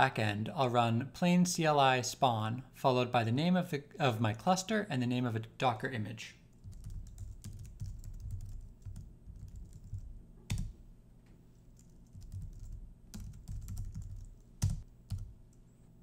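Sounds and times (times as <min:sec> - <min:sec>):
computer keyboard typing: 0:06.6 - 0:10.8, 0:11.8 - 0:15.3.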